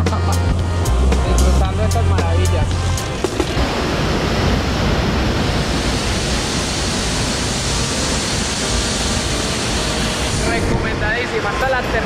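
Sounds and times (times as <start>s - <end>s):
waterfall rushing into a pool: 3.0s - 12.0s.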